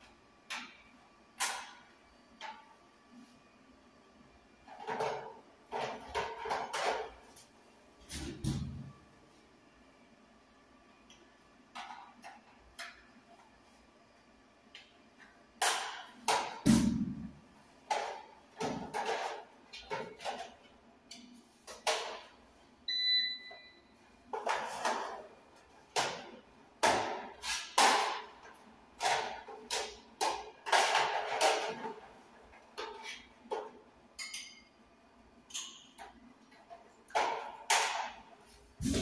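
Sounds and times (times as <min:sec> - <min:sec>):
short electronic beep: 0:22.9 - 0:23.8.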